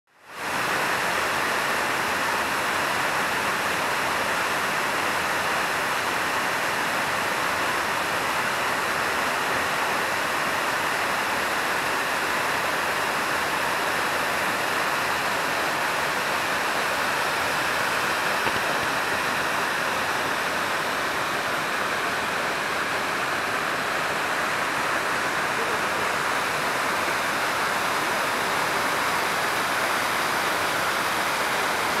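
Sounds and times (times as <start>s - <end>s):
waterfall rushing and splashing: 0.2s - 32.0s.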